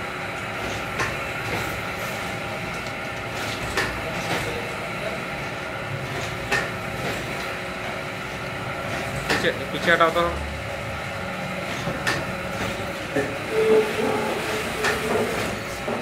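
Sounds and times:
machine running with steady hum: 0.0s - 16.0s
machine press clacking: 14.8s - 16.0s.

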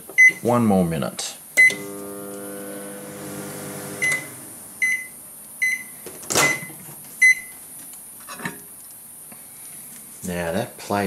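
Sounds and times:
microwave oven humming: 1.6s - 4.8s.

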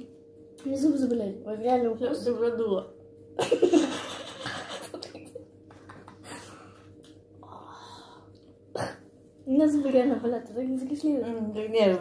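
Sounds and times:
person laughing: 3.4s - 6.7s.

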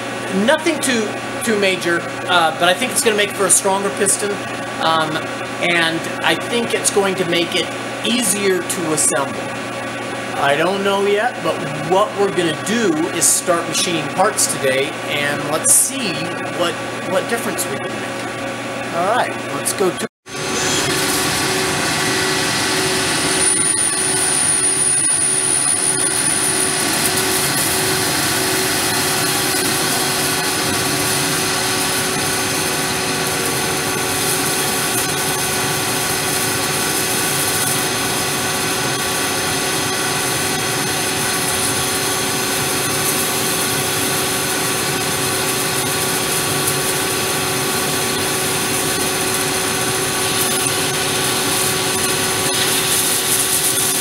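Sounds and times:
lathe spindle hum and whine: 0.0s - 54.0s.

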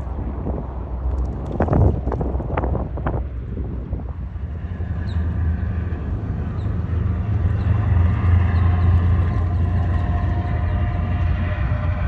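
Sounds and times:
ferry engines rumbling: 0.0s - 12.0s.

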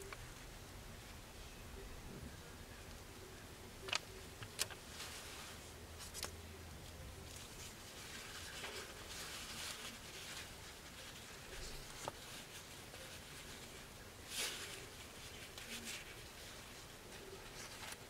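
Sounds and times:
jacket fabric rustling: 7.2s - 18.0s.

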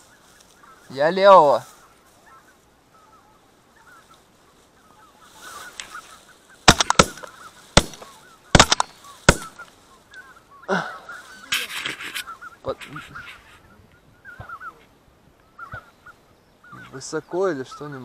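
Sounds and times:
geese honking: 4.8s - 18.0s
shotgun shots: 6.7s - 9.6s.

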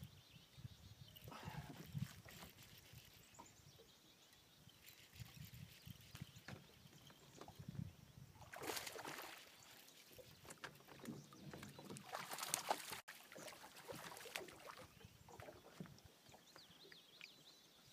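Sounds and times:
fish splashing at the surface: 8.4s - 9.8s, 12.0s - 14.8s.

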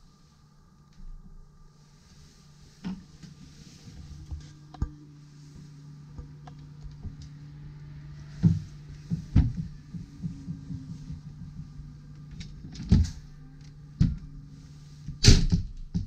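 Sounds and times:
steady low hum: 0.0s - 16.0s
heavy thump: 8.2s - 12.0s, 15.1s - 16.0s.

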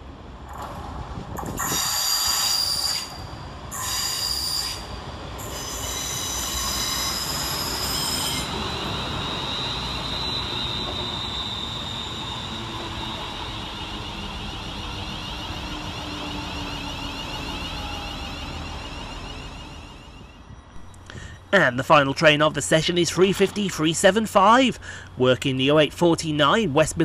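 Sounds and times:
train wheels squealing: 1.5s - 22.4s
rumble of carriages rolling past: 4.4s - 27.0s.

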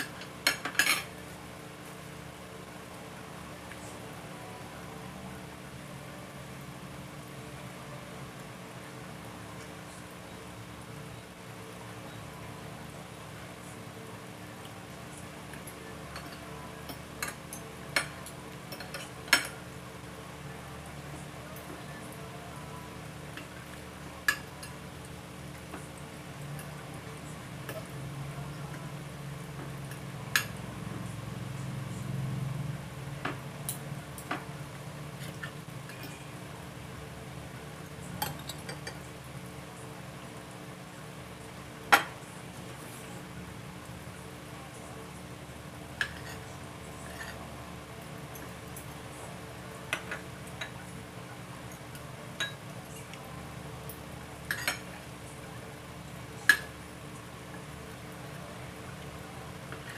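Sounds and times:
cutlery clinking on a plate: 0.0s - 1.1s.

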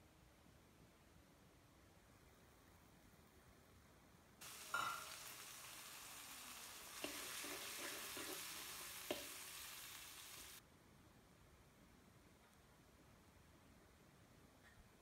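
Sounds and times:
spoon stirring in a pan: 4.4s - 5.5s, 6.8s - 9.9s
vegetables sizzling in oil: 4.4s - 10.6s
spoon clinking against a pan: 4.6s - 5.3s.

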